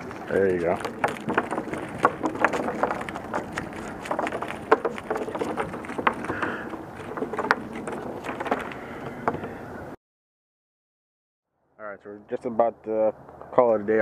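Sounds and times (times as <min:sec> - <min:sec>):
fish flopping on wooden planks: 0:00.0 - 0:09.7.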